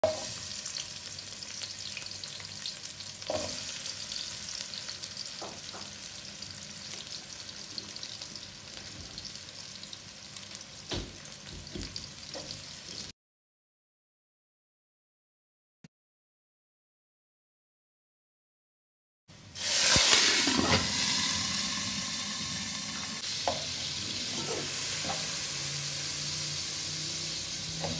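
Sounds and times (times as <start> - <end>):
onions sizzling in hot oil: 0.0 - 13.1, 19.6 - 27.9.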